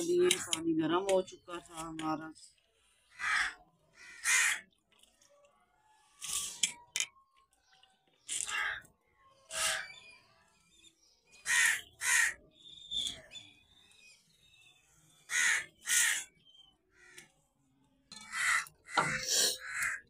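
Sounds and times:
crow cawing: 3.1s - 4.7s, 8.4s - 8.9s, 11.4s - 12.4s, 15.3s - 16.3s, 18.2s - 20.0s.

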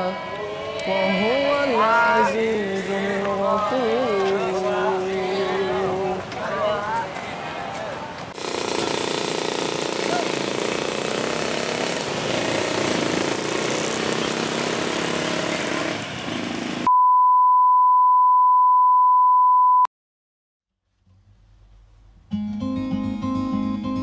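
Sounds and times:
outdoor noise: 0.0s - 17.0s, 20.7s - 23.4s
motorcycle engines running: 8.3s - 16.9s
steady test-tone beep: 16.9s - 19.9s
acoustic guitar music: 22.3s - 24.0s.

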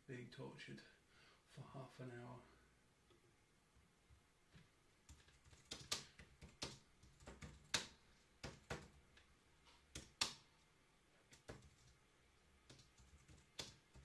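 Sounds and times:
computer keyboard clicks: 5.1s - 9.0s, 12.7s - 14.0s.

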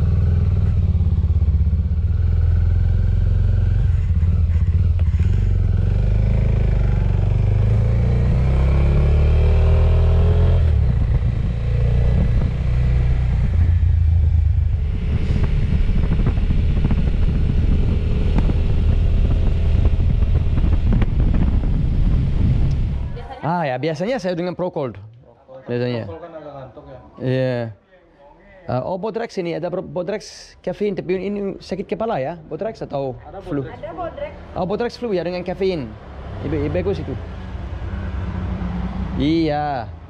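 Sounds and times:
motorcycle engine revving: 0.0s - 23.2s, 35.6s - 40.0s.

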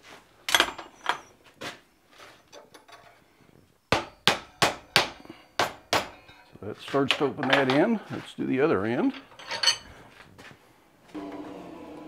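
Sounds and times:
hammer striking chisel: 3.9s - 6.4s.

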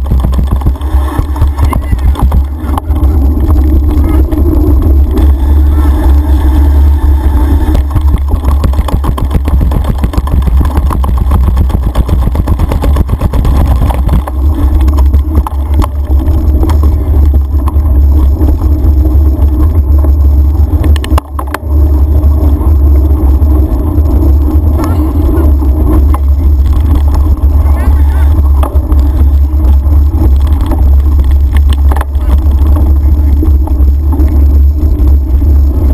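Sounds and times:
bike rattling over paving and gravel: 0.0s - 35.9s
wind rumble on microphone: 0.0s - 35.9s.

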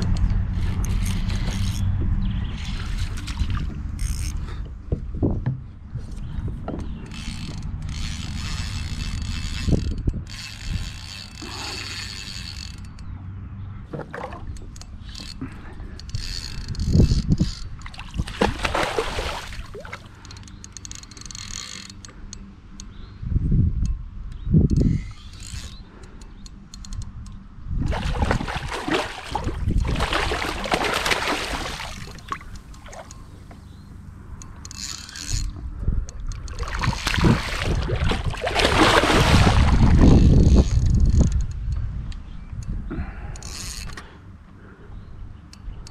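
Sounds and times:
electric trolling motor whirring: 0.0s - 4.5s, 6.9s - 13.2s, 14.4s - 18.2s, 28.0s - 41.9s
ray splashing at water surface: 18.0s - 20.1s, 27.9s - 33.1s, 36.6s - 40.0s
light water sounds: 27.9s - 33.6s, 36.1s - 40.2s.

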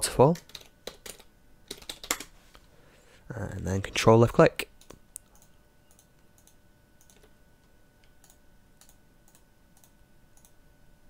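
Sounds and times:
faint steady hum: 0.0s - 11.0s
computer mouse clicks: 4.8s - 7.4s, 8.0s - 10.6s.

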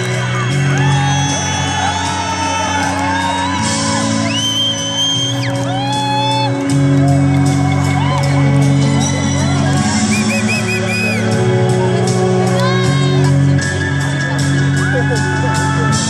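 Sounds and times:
crowd whooping and shouting: 0.0s - 16.0s
piercing whistles: 4.3s - 5.5s, 10.1s - 11.2s.

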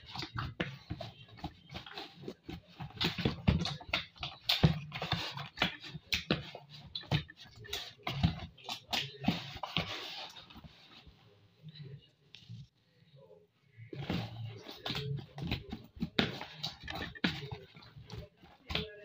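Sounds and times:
hands kneading dough: 0.0s - 12.8s, 13.7s - 19.0s.

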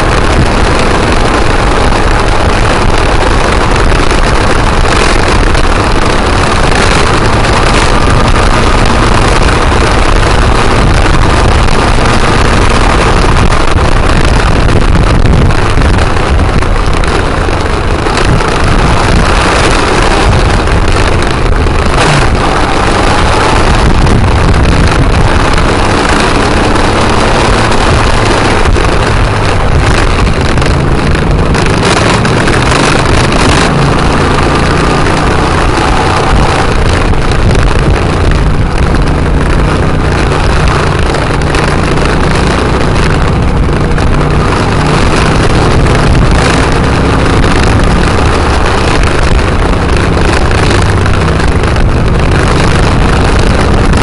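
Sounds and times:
motorcycle engine running: 0.0s - 54.0s
wind rushing over microphone: 0.0s - 54.0s.

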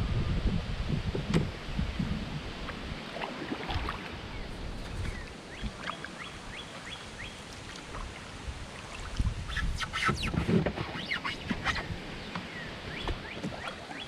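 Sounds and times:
wind buffeting microphone: 0.0s - 13.4s
bird chirping: 4.3s - 7.4s.

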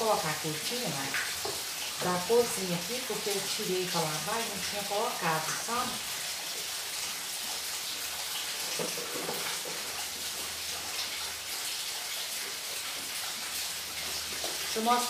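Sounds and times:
rain hissing: 0.0s - 15.0s.

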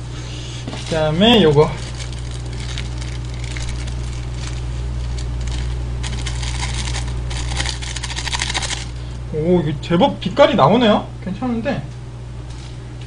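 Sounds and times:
steady low hum: 0.0s - 13.0s
flakes falling into bowl: 0.8s - 9.0s
plastic sachet crinkling: 0.8s - 9.0s.

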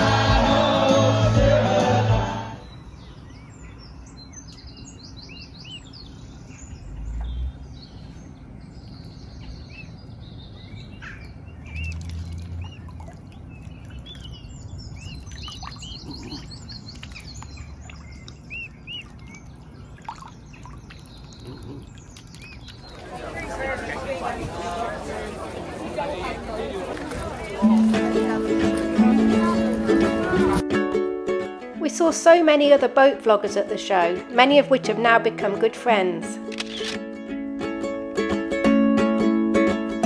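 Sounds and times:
songbirds chirping and trilling: 2.3s - 27.8s.

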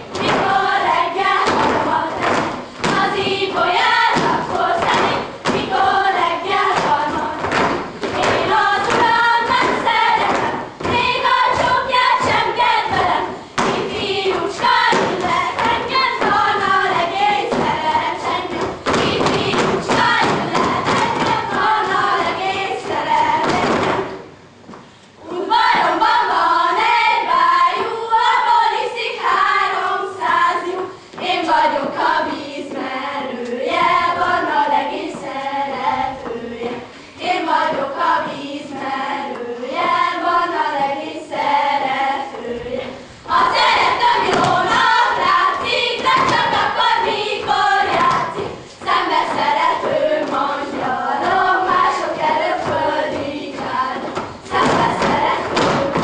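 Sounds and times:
girls singing folk song: 0.0s - 56.0s
feet stamping on wooden stage: 0.2s - 22.3s.

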